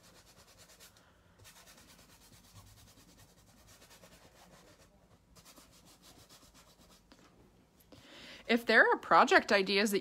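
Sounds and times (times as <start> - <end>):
fingers rubbing paint on canvas: 0.0 - 7.1.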